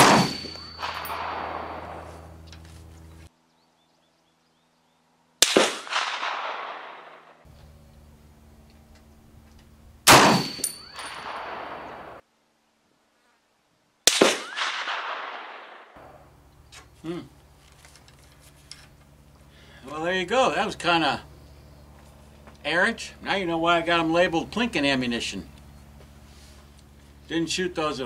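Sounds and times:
rifle shots with echo: 0.0s - 2.3s, 5.4s - 7.5s, 10.1s - 12.2s, 14.0s - 16.2s.

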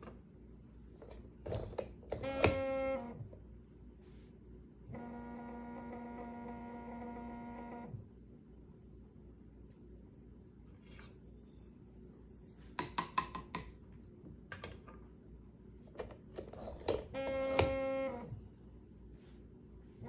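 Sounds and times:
small electric motor whirring: 2.2s - 3.2s, 4.9s - 8.0s, 17.1s - 18.4s
plastic clicks and knocks: 12.8s - 13.8s, 14.5s - 15.0s.

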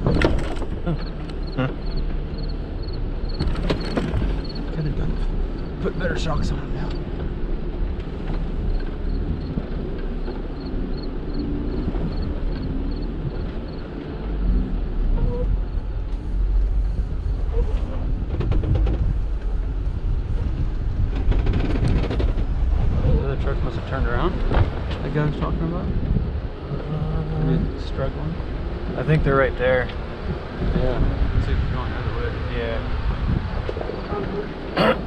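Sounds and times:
knocks and rattles: 0.0s - 5.3s, 18.2s - 19.6s, 20.4s - 22.9s
vehicle engine and tyres rumbling: 0.0s - 35.0s.

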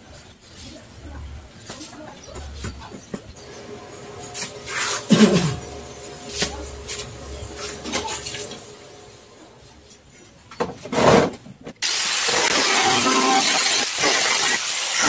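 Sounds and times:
angle grinder cutting plastic: 4.2s - 8.7s, 11.8s - 15.0s.

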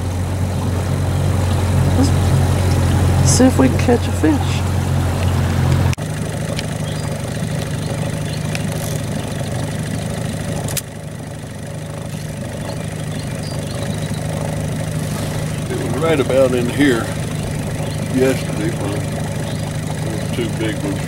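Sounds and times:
boat motor running: 0.0s - 21.0s.

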